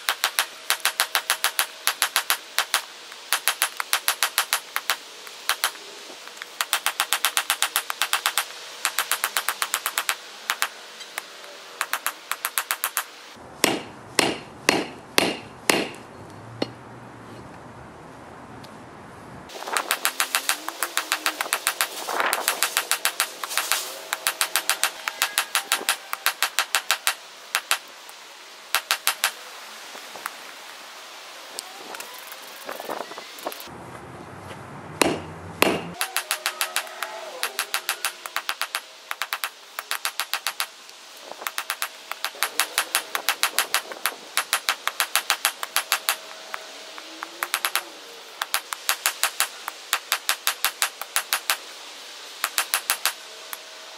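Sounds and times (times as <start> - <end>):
hammer striking iron on anvil: 13.6 - 16.0, 35.0 - 36.7.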